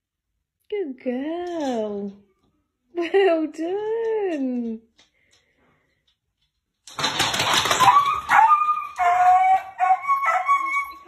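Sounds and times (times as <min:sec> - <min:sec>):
dog yelping and whining: 0:07.6 - 0:11.0.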